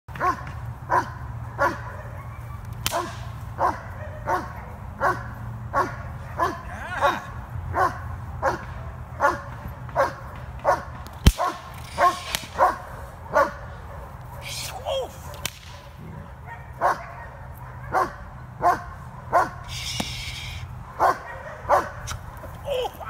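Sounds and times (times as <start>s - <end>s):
puppy barking: 0.2s - 19.7s, 21.0s - 22.9s
sharp cracks: 2.6s - 3.4s, 10.4s - 12.8s, 14.4s - 16.0s, 19.7s - 20.6s.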